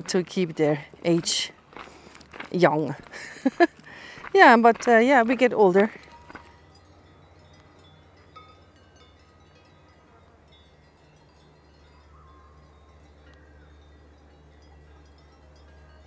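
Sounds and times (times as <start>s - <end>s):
distant cowbells clanking: 4.2s - 16.0s.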